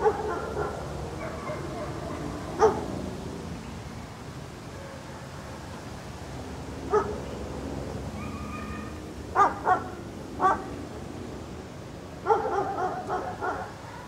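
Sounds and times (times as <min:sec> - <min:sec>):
dog barking: 0:00.0 - 0:02.9, 0:04.8 - 0:05.4, 0:06.9 - 0:07.2, 0:09.4 - 0:10.7, 0:12.2 - 0:14.0.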